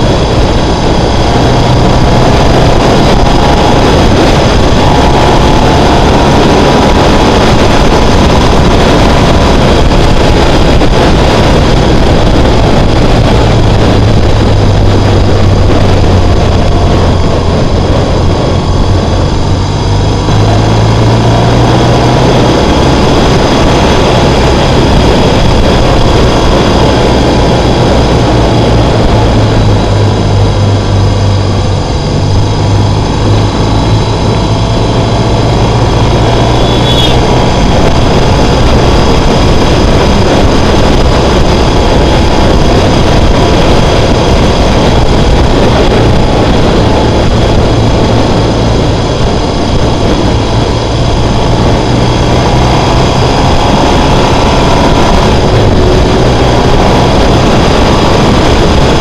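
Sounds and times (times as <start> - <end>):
motorcycle engine running: 0.0 - 59.0
wind rush on microphone: 0.0 - 59.0.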